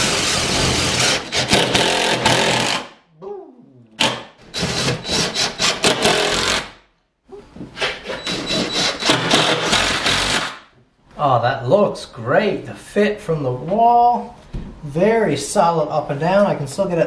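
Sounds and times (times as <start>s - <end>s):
cordless drill driving fasteners: 8.0s - 10.6s.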